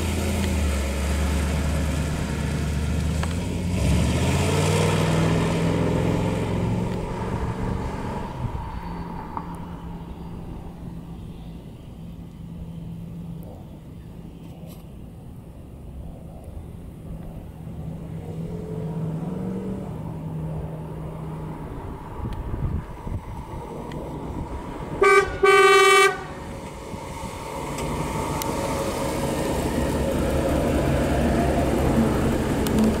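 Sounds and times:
car engine approaching: 0.0 - 33.0
car horn: 25.0 - 26.4.

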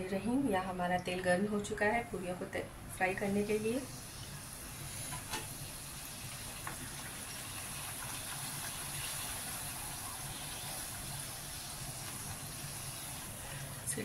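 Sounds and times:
dough deep-frying in oil: 3.0 - 14.0.

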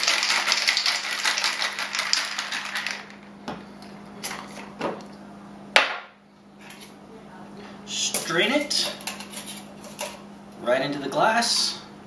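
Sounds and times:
ice rattling in cocktail shaker: 0.0 - 3.2.

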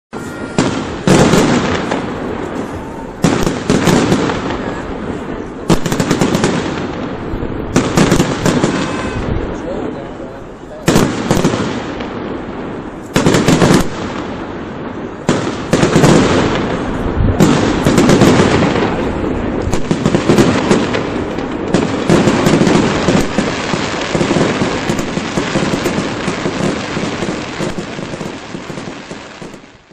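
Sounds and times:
fireworks bangs: 0.1 - 29.9
fireworks crackling: 0.1 - 29.9.

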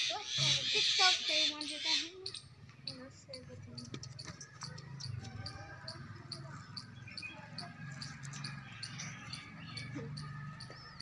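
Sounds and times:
high-pitched chirp: 4.2 - 11.0.

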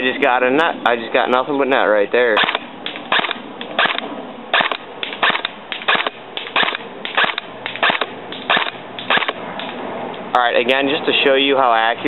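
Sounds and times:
airsoft rifle firing single shots: 2.4 - 9.4.

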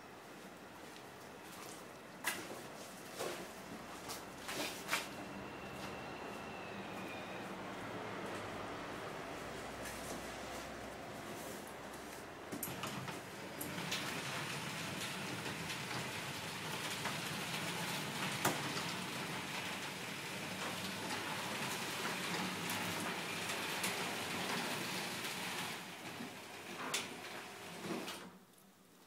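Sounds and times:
garage door opener running: 12.0 - 28.4.

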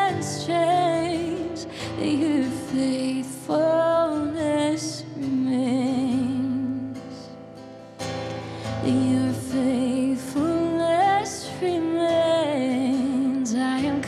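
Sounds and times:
woman singing worship song: 0.0 - 7.3, 8.6 - 14.0
acoustic guitar strumming: 0.0 - 14.0.

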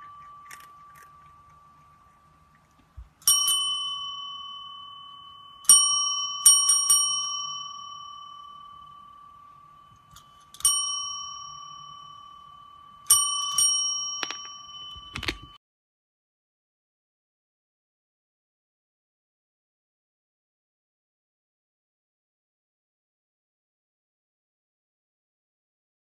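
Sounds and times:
small metal bell ringing: 0.0 - 2.6, 3.2 - 15.6.

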